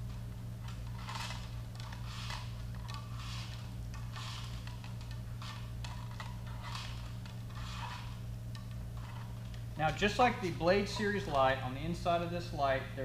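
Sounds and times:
low hum: 0.0s - 13.0s
wire scraping through plastic housing: 0.6s - 9.6s.

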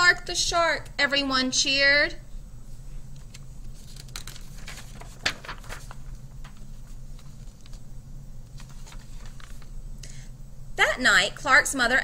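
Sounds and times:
steady low hum: 0.0s - 12.0s
book pages turning: 3.1s - 9.8s.

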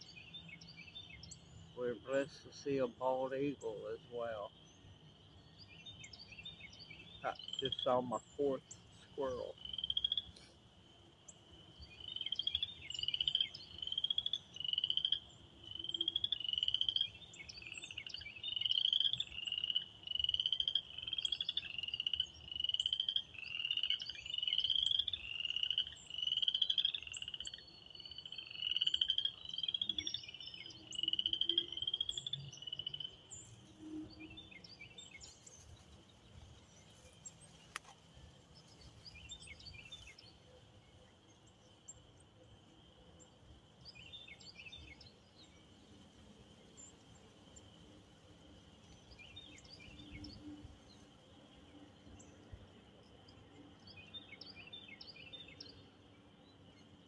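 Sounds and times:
distant frog chorus: 0.0s - 57.0s
frog peeping: 12.0s - 15.2s.

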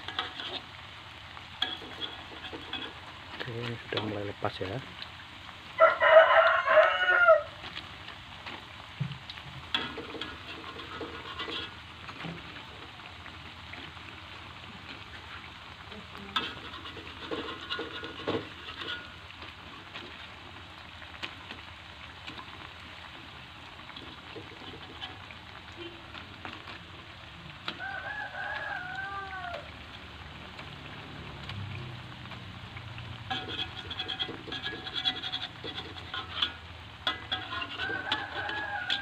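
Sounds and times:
metal spatula scraping wok: 0.0s - 5.1s, 9.6s - 28.8s, 33.0s - 39.0s
batter sizzling in oil: 0.0s - 39.0s
rooster crowing: 5.8s - 7.6s, 27.6s - 29.8s, 37.4s - 39.0s.

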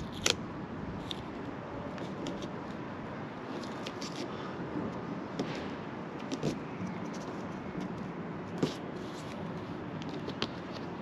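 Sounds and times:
tape peeling crackles: 0.0s - 0.4s, 3.4s - 4.4s
low background noise: 0.0s - 11.0s.

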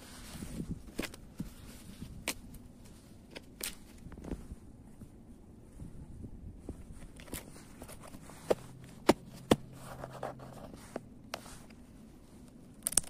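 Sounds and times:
brittle sheet cracking: 12.8s - 13.0s.

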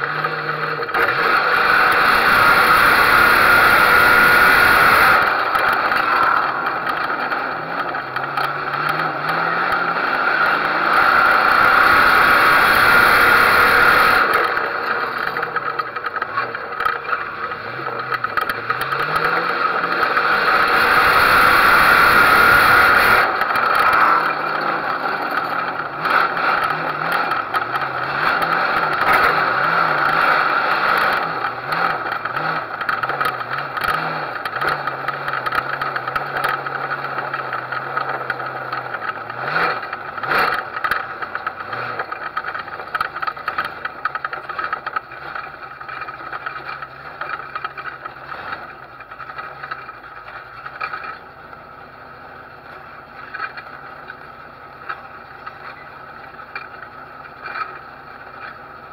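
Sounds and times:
race car engine revving: 0.0s - 51.2s
rattling: 0.1s - 51.6s
rushing noise: 0.9s - 16.2s.

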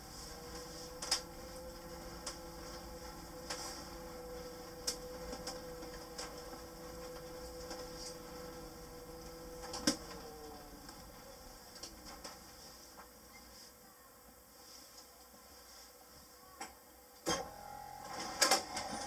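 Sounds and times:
electric drive whining: 0.0s - 12.4s.

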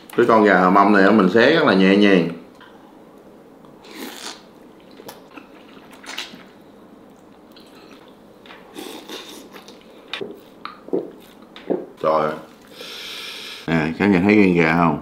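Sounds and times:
person biting and chewing: 3.8s - 6.4s
squishy slurping mouth noises: 3.8s - 6.5s.

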